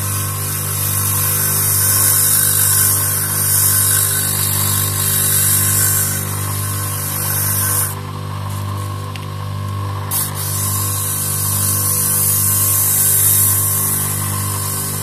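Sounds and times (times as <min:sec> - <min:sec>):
electric motor spinning: 0:00.0 - 0:15.0
sandpaper hissing against cork: 0:10.1 - 0:15.0.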